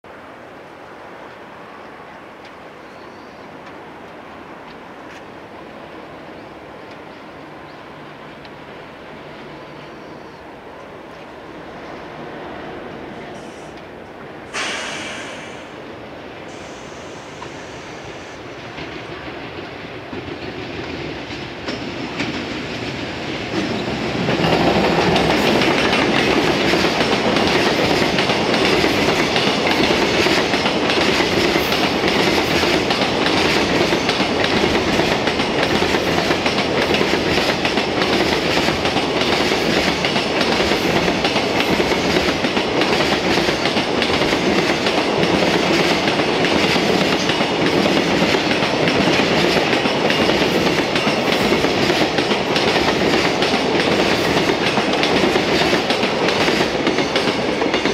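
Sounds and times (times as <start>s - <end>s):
freight train passing: 0.0s - 57.9s
train wheels clattering on rails: 14.5s - 15.8s, 16.5s - 57.9s.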